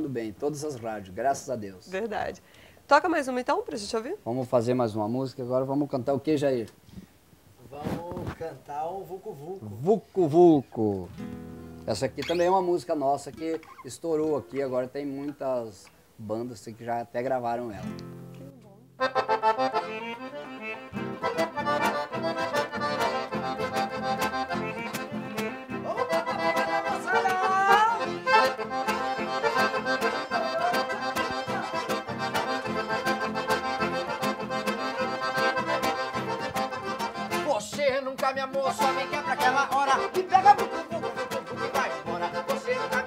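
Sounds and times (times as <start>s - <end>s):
acoustic guitar: 9.6s - 16.1s, 17.3s - 43.0s
accordions playing dance tune: 19.0s - 43.0s
steady beat: 21.1s - 43.0s.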